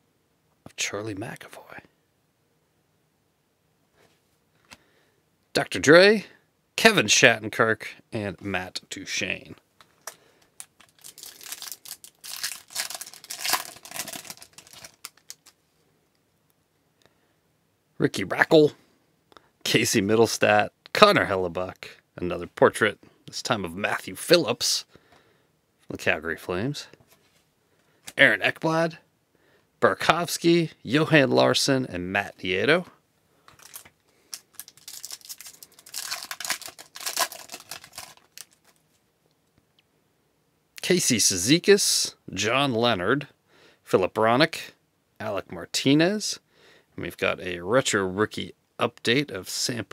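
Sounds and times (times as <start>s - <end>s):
wrapper tearing and crinkling: 10.0s - 15.6s, 33.6s - 38.8s.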